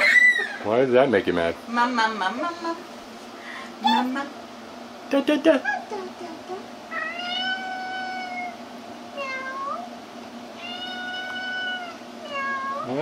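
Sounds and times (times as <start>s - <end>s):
cat meowing: 6.9s - 8.6s, 9.2s - 9.9s, 10.6s - 12.9s.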